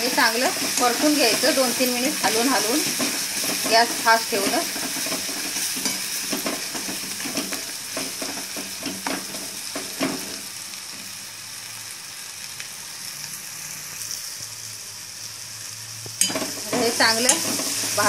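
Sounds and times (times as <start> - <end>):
metal spatula scraping pan: 0.0 - 10.4, 16.2 - 18.0
masala sizzling in hot oil: 0.0 - 18.0.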